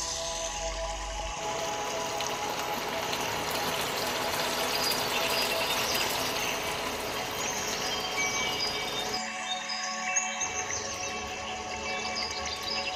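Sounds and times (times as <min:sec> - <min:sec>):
gravy simmering in a pan: 0:01.4 - 0:09.3.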